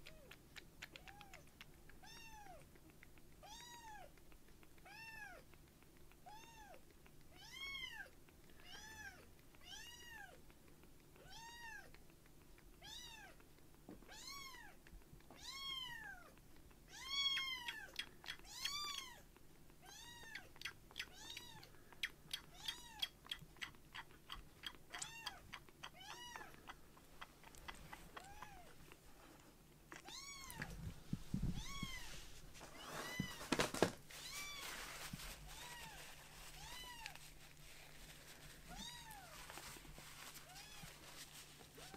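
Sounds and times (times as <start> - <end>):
rustling and handling noise: 24.4 - 41.9
kitten meowing: 24.9 - 26.6, 30.0 - 30.7, 31.6 - 32.1.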